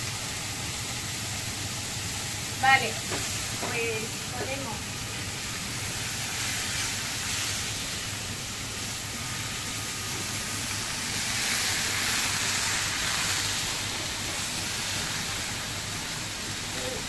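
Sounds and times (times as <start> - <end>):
hot oil hissing in frying pan: 0.0 - 17.0.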